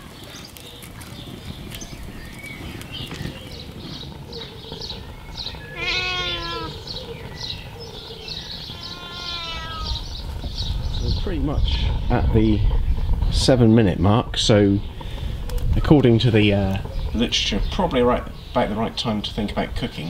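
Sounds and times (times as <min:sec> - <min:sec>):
cat meowing: 0:05.7 - 0:06.8, 0:08.7 - 0:10.0.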